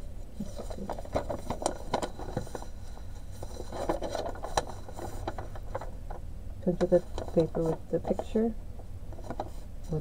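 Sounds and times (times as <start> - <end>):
steady low hum: 0.0 - 10.0
paper rustling: 0.4 - 6.2.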